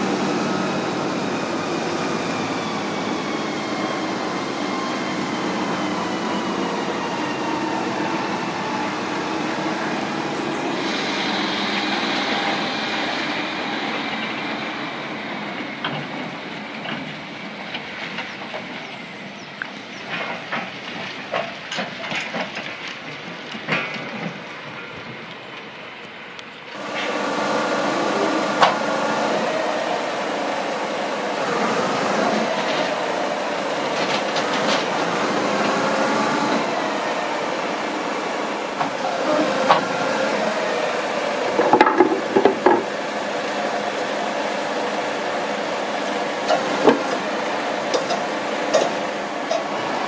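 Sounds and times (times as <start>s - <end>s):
truck machinery running: 0.0s - 50.0s.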